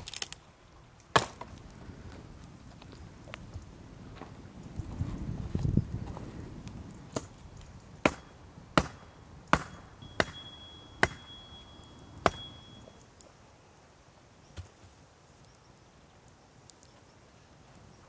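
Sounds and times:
wooden stake being hammered: 8.0 - 11.4, 12.2 - 12.7.

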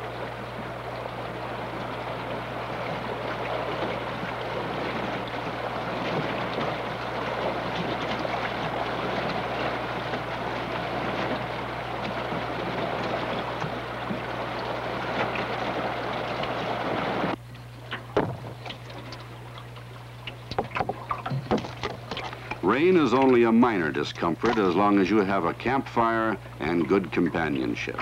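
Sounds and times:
rain falling on a river: 0.0 - 20.7.

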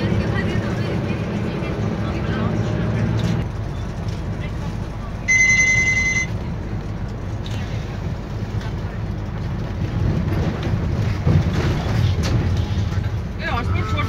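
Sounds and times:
bus engine and road rumble: 0.0 - 14.0
loud high beep: 5.3 - 6.3.

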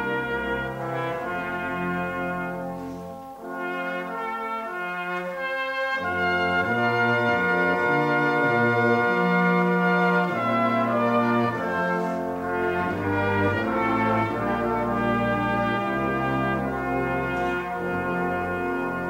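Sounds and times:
brass band playing held chords: 0.0 - 19.0.

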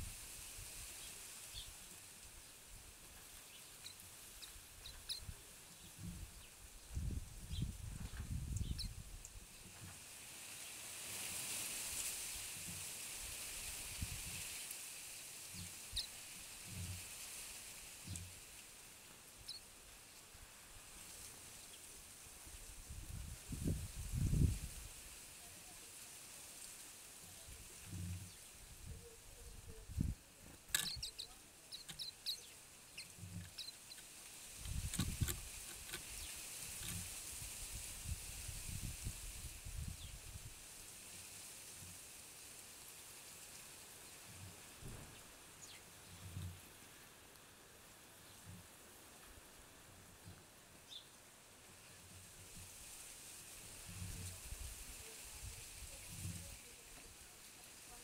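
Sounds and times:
wind through foliage: 0.0 - 58.0
birds giving high chirps: 3.5 - 5.3, 8.5 - 9.0, 30.7 - 37.0
high bird chirps: 30.8 - 34.1
wind buffeting microphone: 34.6 - 36.3.

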